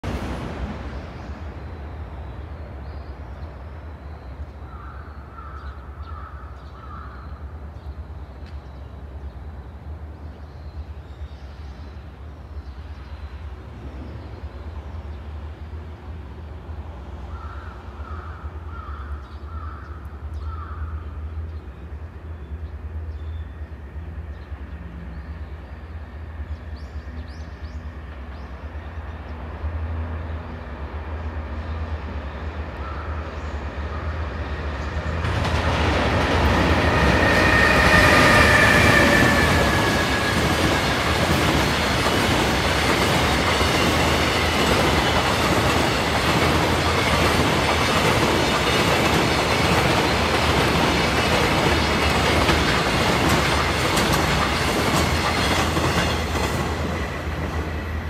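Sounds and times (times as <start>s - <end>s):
crow cawing: 4.7s - 7.2s, 17.3s - 21.0s.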